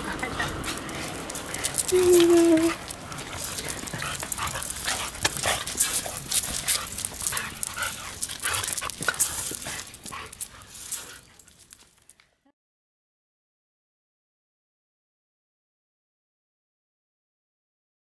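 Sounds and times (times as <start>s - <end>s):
dogs vocalizing: 0.0s - 10.5s.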